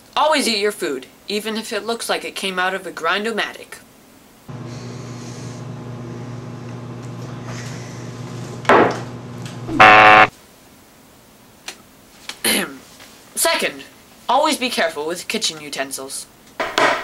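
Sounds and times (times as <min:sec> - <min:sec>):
low electric hum: 0:08.1 - 0:10.3
loud harsh buzzing tone: 0:09.7 - 0:10.3.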